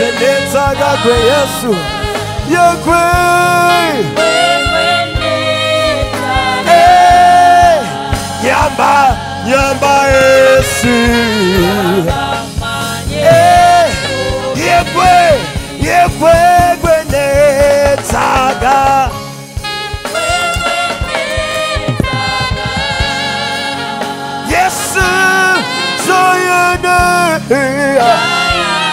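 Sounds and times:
man singing into a microphone: 0.0s - 4.3s, 6.7s - 12.2s, 13.2s - 19.2s, 24.5s - 28.6s
backing singers: 0.0s - 19.1s, 20.0s - 26.1s, 27.7s - 28.9s
band accompaniment: 0.0s - 28.9s
drum strokes: 1.2s - 25.2s.

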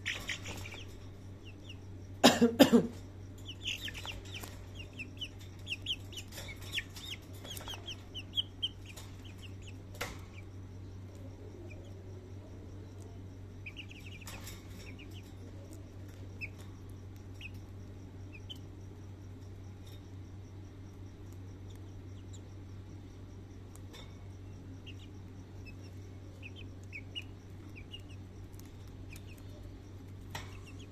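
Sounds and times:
chickens chirping: 0.0s - 2.2s, 2.9s - 18.7s, 24.7s - 30.9s
steady low hum: 0.0s - 30.9s.

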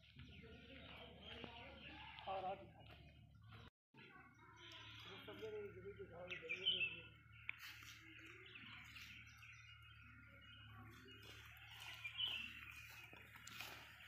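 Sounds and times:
birds chirping: 0.0s - 14.0s.

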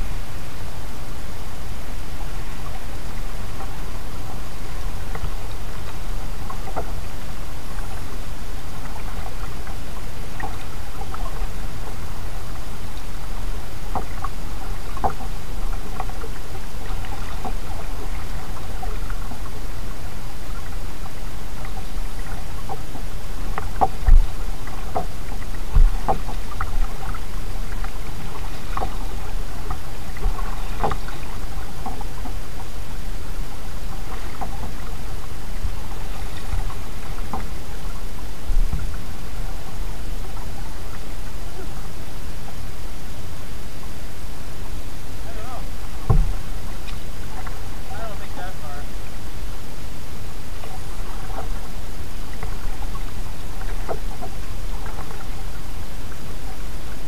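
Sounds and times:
paddle splashes and drips: 0.0s - 57.0s
steady hiss and low rumble: 0.0s - 57.0s
low thumps: 23.6s - 29.2s, 38.4s - 39.5s, 45.9s - 47.5s.

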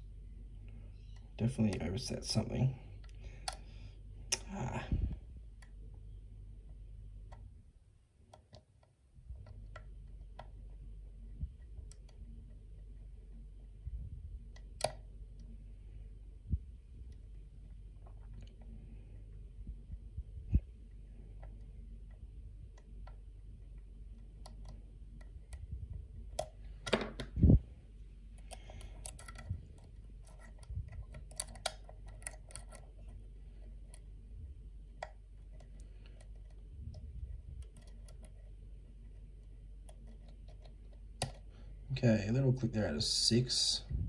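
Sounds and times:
lock pick metallic clicks: 28.4s - 33.0s.

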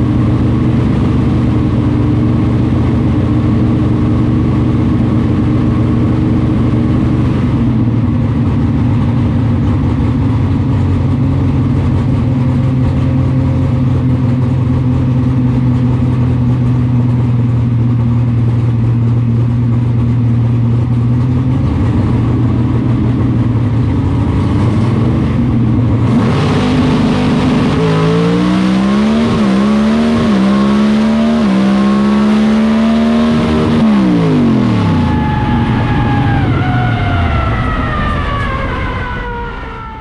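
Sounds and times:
race car engine revving and upshifting: 24.2s - 39.9s.

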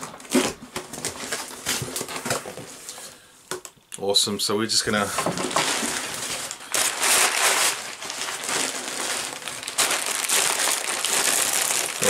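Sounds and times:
plastic packaging crinkling: 0.0s - 2.6s, 5.2s - 12.0s.

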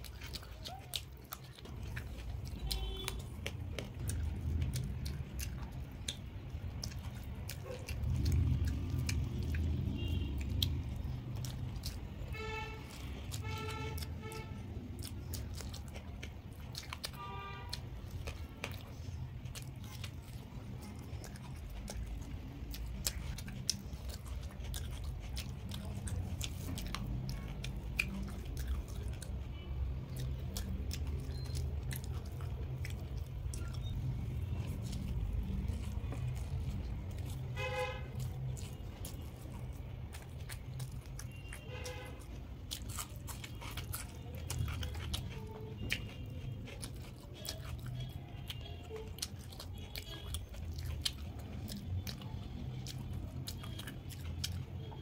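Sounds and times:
close chewing and mouth sounds: 0.0s - 55.0s
steady low rumble: 17.9s - 41.0s.

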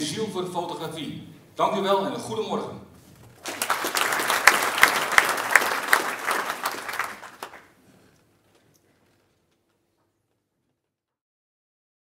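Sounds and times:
audience applauding: 3.4s - 7.8s.

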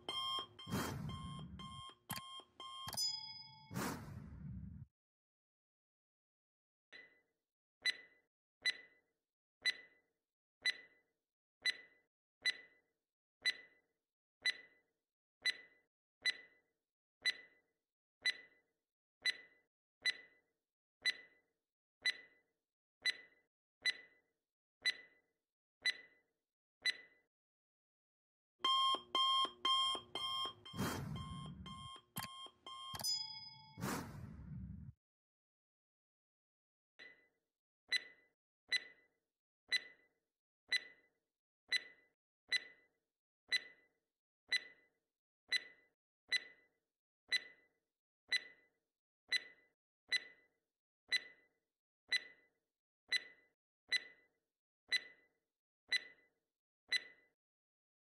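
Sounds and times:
clock ticking: 0.0s - 3.7s, 28.6s - 34.4s
alarm bell ringing: 0.0s - 3.8s, 28.6s - 34.3s
short sound effect: 0.6s - 1.9s, 3.7s - 4.8s, 30.6s - 32.0s, 33.7s - 34.9s.

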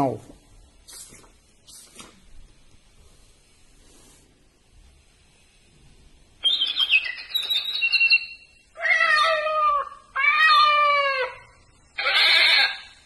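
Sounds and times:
recorded bird chirps from speaker: 6.4s - 8.6s
recorded cat meows: 8.8s - 12.9s.

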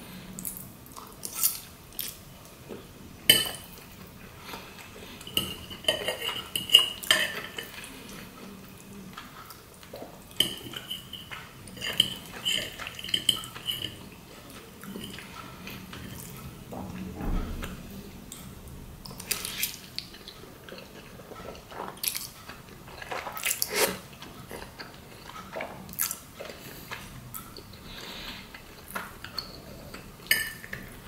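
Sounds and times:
fork scraping a ceramic plate: 23.6s - 24.0s.

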